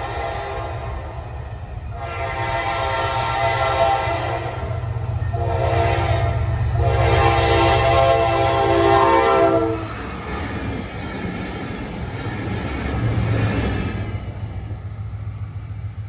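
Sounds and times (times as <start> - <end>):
locomotive air horn blasts: 0.0 - 1.0, 1.9 - 10.0
low rumble of engines: 0.0 - 16.0.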